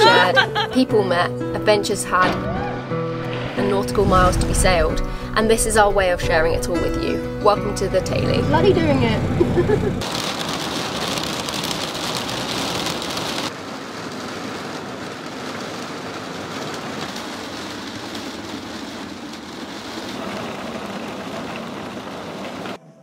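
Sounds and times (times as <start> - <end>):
heavy rain hissing: 3.1 - 7.0, 9.6 - 22.8
rain drumming on deck and windows: 8.6 - 22.8.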